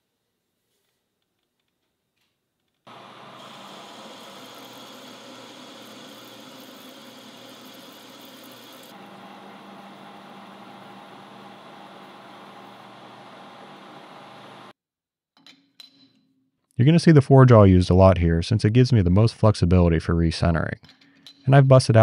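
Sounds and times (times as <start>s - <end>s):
metal lathe cutting steel: 2.9s - 14.7s.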